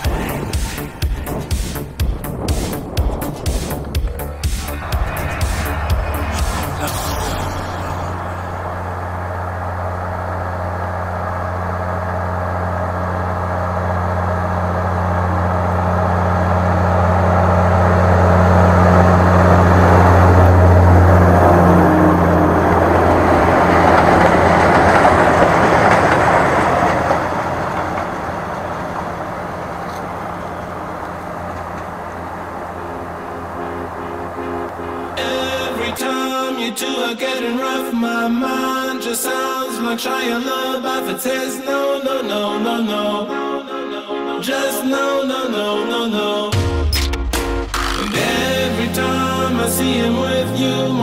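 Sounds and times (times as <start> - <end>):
vehicle engine passing by: 0.0 - 36.5, 47.4 - 51.0.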